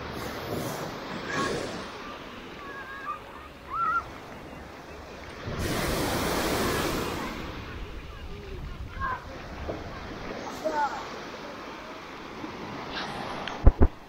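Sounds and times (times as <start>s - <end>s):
small waves washing onto beach: 0.0s - 14.0s.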